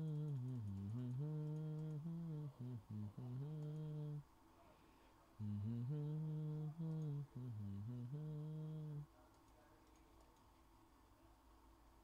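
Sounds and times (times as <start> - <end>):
man humming: 0.0 - 4.2, 5.4 - 9.1.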